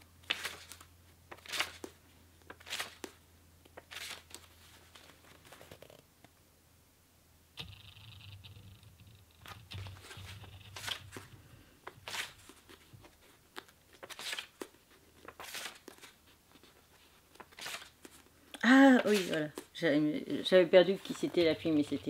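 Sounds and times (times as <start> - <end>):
pages being leafed through: 0.2 - 6.0, 9.4 - 18.3, 18.9 - 19.8, 20.8 - 22.0.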